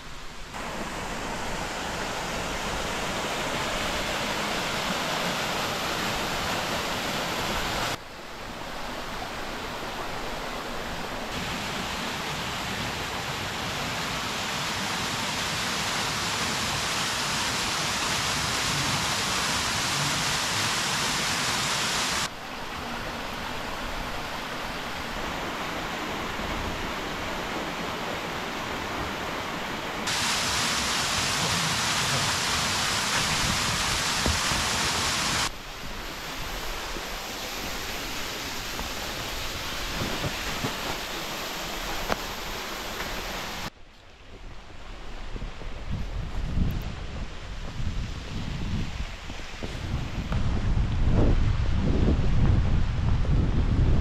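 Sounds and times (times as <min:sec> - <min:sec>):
waterfall rushing: 0:00.6 - 0:43.7.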